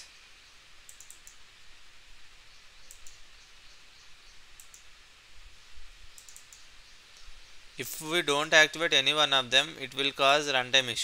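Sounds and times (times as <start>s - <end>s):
faint steady hiss: 0.0s - 11.0s
computer mouse clicking: 0.8s - 1.4s, 2.8s - 3.2s, 4.6s - 4.9s, 6.1s - 6.7s.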